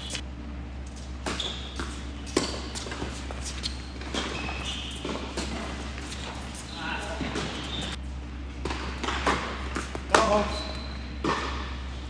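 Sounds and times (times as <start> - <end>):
shoe squeaks: 0.0 - 0.2, 1.2 - 8.0, 10.2 - 11.8
tennis balls struck by rackets: 1.2 - 6.6, 8.6 - 11.9.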